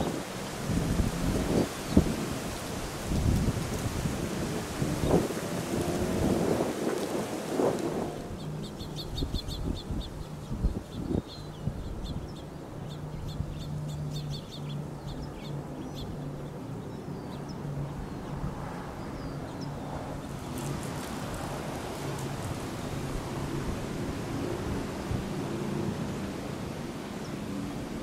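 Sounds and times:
broad rushing noise: 0:00.0 - 0:10.5, 0:15.6 - 0:28.0
wind buffeting microphone: 0:00.0 - 0:14.5, 0:16.0 - 0:28.0
small birds chirping: 0:08.2 - 0:18.4.

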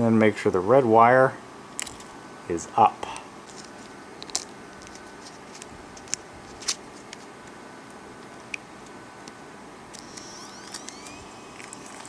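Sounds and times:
steady low hiss: 0:00.0 - 0:12.0.

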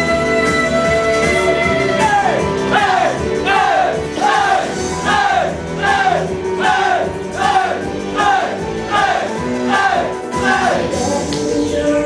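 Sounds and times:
pop backing track: 0:00.0 - 0:12.0
audience chanting: 0:02.7 - 0:11.0.

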